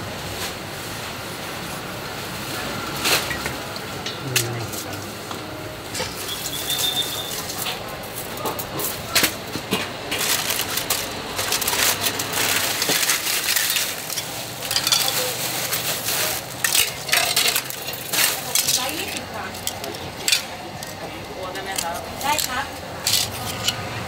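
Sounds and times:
plastic bag rustling: 5.9s - 23.5s.

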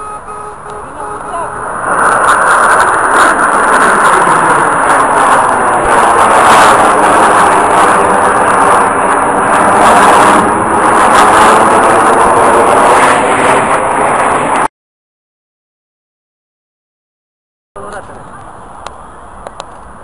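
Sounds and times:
jet aircraft roar: 0.0s - 14.7s.

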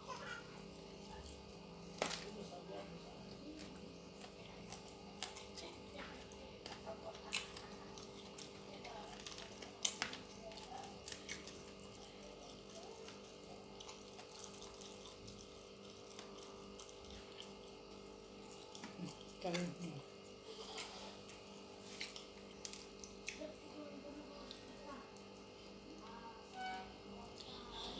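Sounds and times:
chewing wet clicks: 3.2s - 19.8s, 20.7s - 23.6s.

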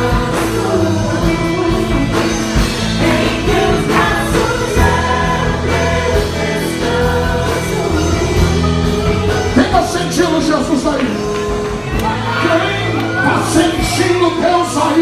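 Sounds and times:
voices singing: 0.0s - 10.0s
worship music chords and bass: 0.0s - 15.0s.

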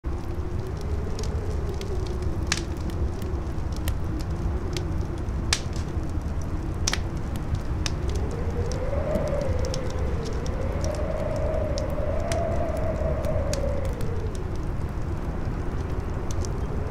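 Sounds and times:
campfire crackling and popping: 0.0s - 16.9s
howling wind: 0.0s - 16.9s
low rumble: 0.1s - 16.9s.

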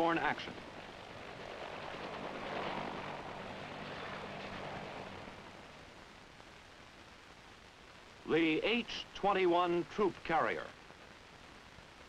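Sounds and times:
helicopter engine and rotor noise: 0.0s - 5.9s
low hum: 0.0s - 8.8s.

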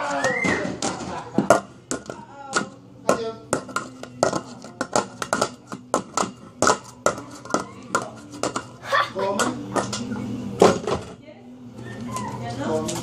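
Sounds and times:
hand drumming on metal tin: 1.5s - 8.8s.

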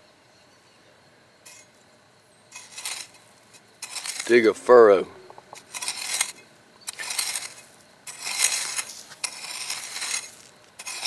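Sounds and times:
hoe scraping through dry soil: 1.5s - 1.8s, 2.5s - 11.0s.

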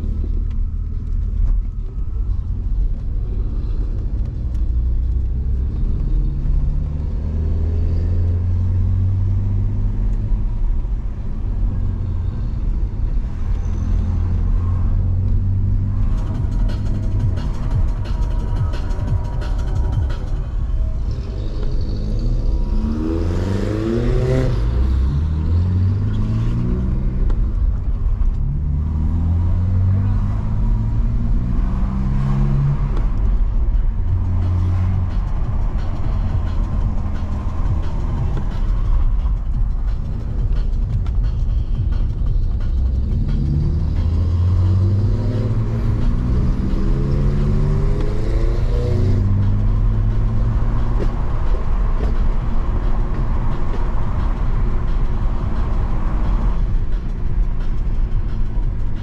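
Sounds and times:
car engine and road noise: 0.0s - 59.0s
engine revs rising: 13.7s - 27.7s, 28.4s - 39.2s, 42.6s - 56.8s.

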